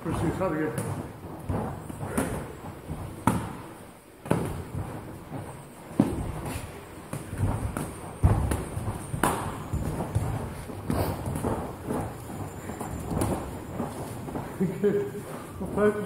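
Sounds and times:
boxing gloves thudding: 0.0s - 16.0s.

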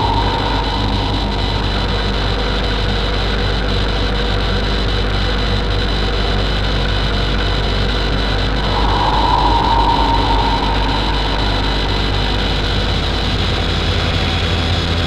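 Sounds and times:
loud hiss-like drone: 0.0s - 2.8s, 8.4s - 13.4s
low hum: 0.0s - 3.0s, 8.2s - 13.8s.

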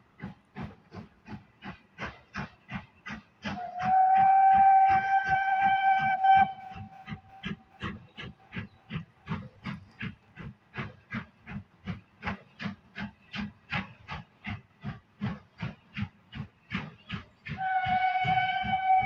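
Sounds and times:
steam locomotive exhaust beats: 0.0s - 19.0s
steam whistle: 3.6s - 7.6s, 17.5s - 19.0s.

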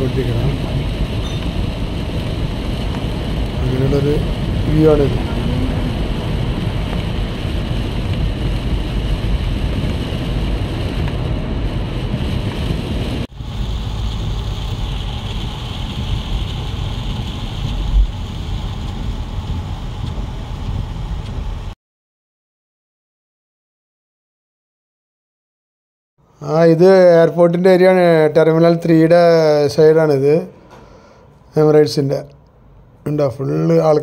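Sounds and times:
rain on car: 0.0s - 21.8s
tyres hissing on wet road: 0.0s - 21.8s, 30.5s - 31.4s.

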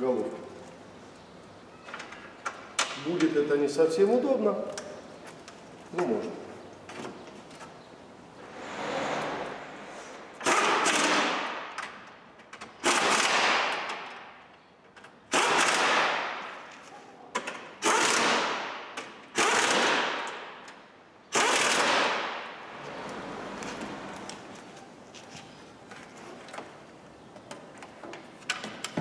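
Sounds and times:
power tool rattling bursts: 10.4s - 11.8s, 12.7s - 14.0s, 15.3s - 16.4s, 17.8s - 20.5s, 21.3s - 22.4s.

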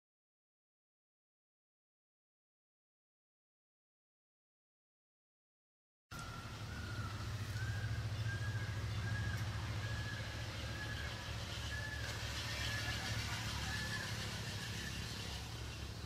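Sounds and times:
steady low rumble: 6.2s - 16.0s.

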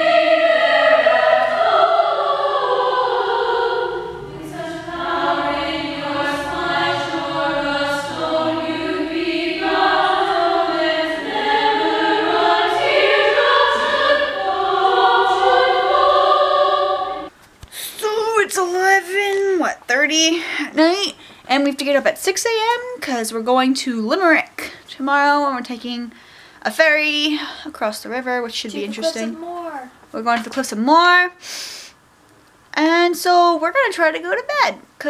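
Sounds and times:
choir singing held chords: 0.0s - 17.3s.

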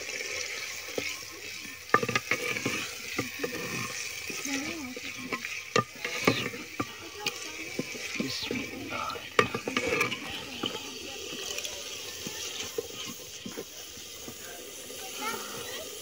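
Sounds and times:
oil sizzling: 0.0s - 16.0s
wooden spoon knocking clay pot: 1.8s - 4.4s, 5.0s - 8.3s, 9.2s - 11.4s.

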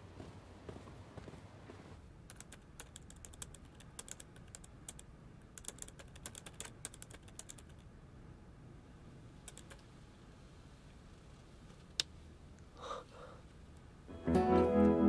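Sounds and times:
laptop keyboard typing: 2.3s - 7.8s, 9.5s - 9.8s.

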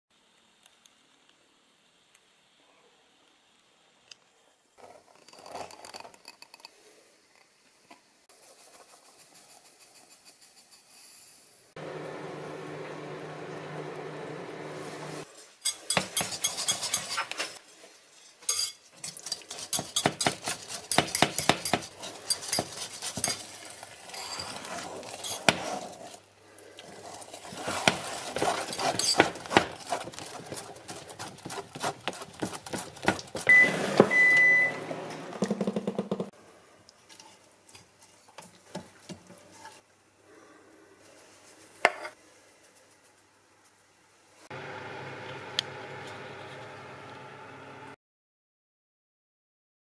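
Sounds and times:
whisk clinking against bowl: 15.6s - 17.6s, 18.5s - 23.6s
short high beep: 33.5s - 34.9s.

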